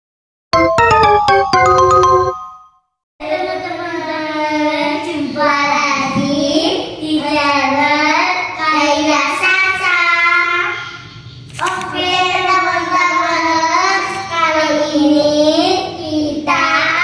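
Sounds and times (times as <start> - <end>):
chiming jingle: 0.6 - 2.8.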